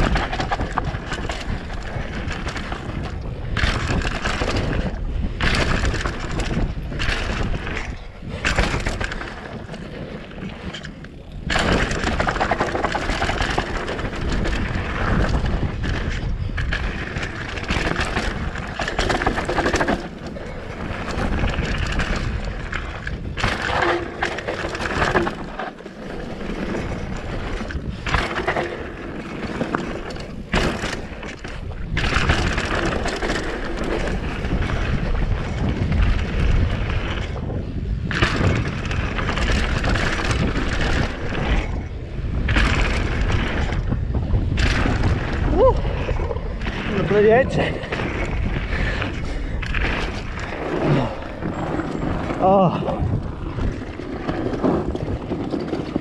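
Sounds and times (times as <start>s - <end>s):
bike rattling over bumps: 0.0s - 56.0s
tyres rolling over dirt: 0.0s - 56.0s
wind on microphone: 0.0s - 56.0s.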